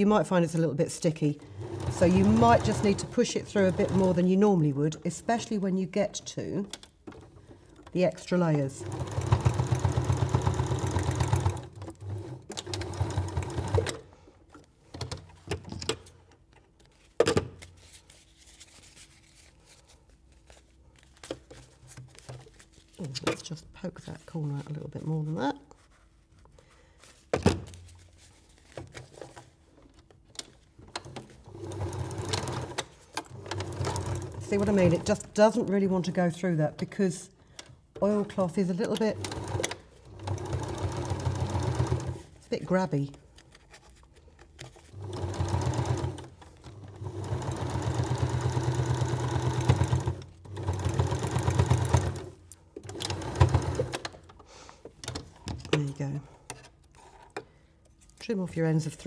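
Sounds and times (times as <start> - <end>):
sewing machine stitching: 1.5 - 4.4, 8.8 - 14.0, 30.9 - 35.2, 38.8 - 42.2, 44.9 - 54.1.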